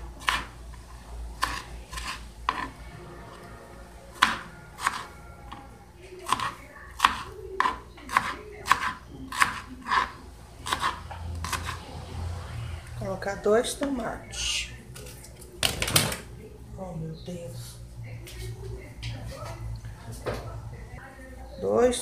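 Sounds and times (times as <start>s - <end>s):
knife chopping on wooden board: 0.2s - 0.5s, 1.4s - 2.7s, 4.2s - 5.0s, 6.3s - 11.8s.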